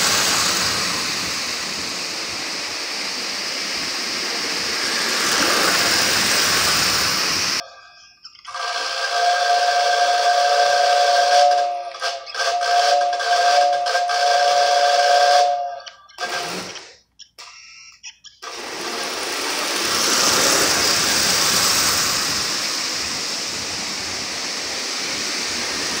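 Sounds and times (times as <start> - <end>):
toy train rattling on track: 3.8 - 26.0
toy train whistle: 7.6 - 19.3.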